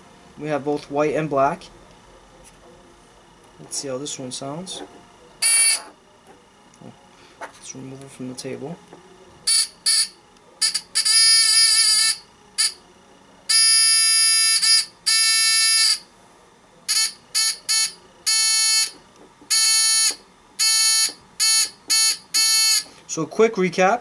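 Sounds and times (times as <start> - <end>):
electric buzzer buzzing: 5.4 - 6.0, 9.4 - 12.8, 13.5 - 16.1, 16.9 - 22.9.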